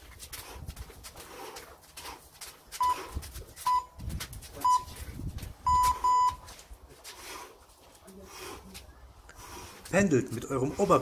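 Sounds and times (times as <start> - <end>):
round timer beeping: 3.7 - 4.0, 4.6 - 5.0, 5.7 - 6.4.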